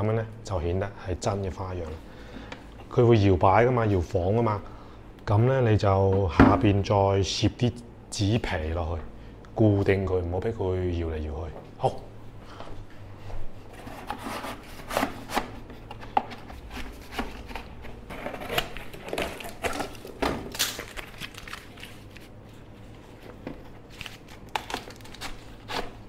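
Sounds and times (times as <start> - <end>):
cardboard tearing and crumpling: 16.6 - 22.4, 23.9 - 26.0.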